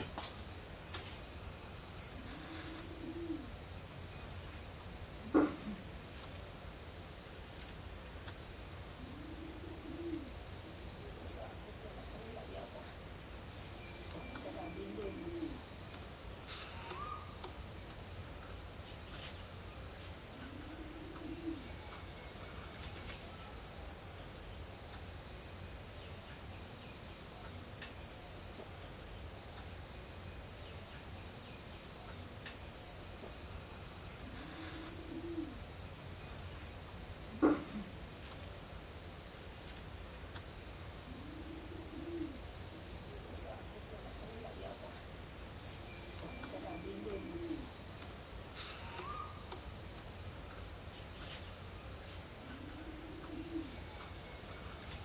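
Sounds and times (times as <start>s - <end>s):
insect chorus: 0.0s - 55.0s
low cooing bird call: 2.2s - 3.6s, 9.0s - 10.8s, 14.0s - 15.7s, 16.5s - 17.5s, 20.4s - 23.6s, 34.2s - 35.6s, 41.0s - 42.9s, 46.2s - 47.8s, 48.6s - 49.6s, 52.4s - 55.0s.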